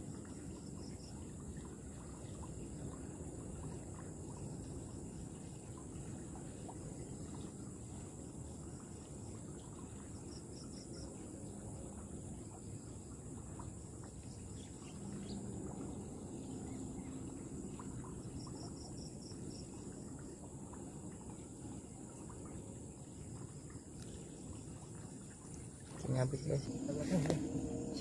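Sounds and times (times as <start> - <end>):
insect chorus: 0.0 - 28.0
faint low rumble: 26.0 - 28.0.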